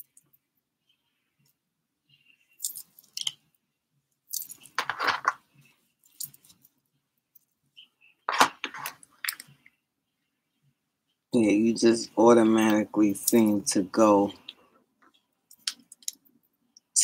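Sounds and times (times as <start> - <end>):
metal bangles jangling: 2.6 - 3.1, 4.3 - 5.2, 6.0 - 6.7
handling rustle: 4.3 - 7.5.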